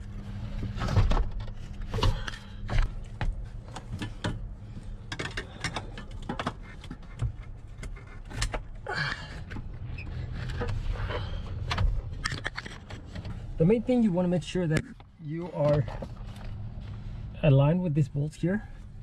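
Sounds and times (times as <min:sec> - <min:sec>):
metal parts knocking and scraping: 0:11.8 - 0:13.3.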